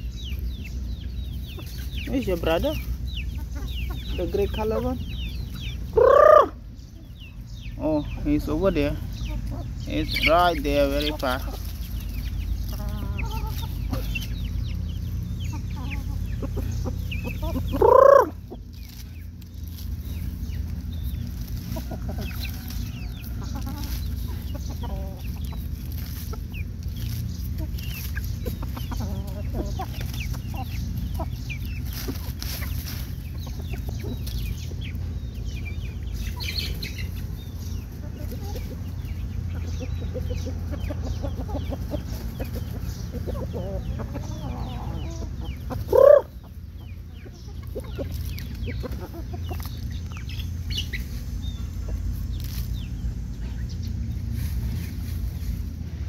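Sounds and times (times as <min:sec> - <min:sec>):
chickens clucking: 0:00.0 - 0:56.0
pecking and rustling in dry leaves: 0:00.0 - 0:56.0
chicken squawk: 0:05.5 - 0:07.1, 0:11.0 - 0:14.6, 0:15.4 - 0:19.0, 0:21.6 - 0:26.4, 0:38.0 - 0:46.6.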